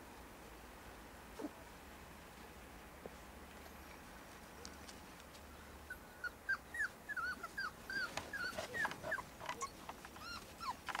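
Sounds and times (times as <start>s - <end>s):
puppies whimpering and yipping: 5.9s - 11.0s.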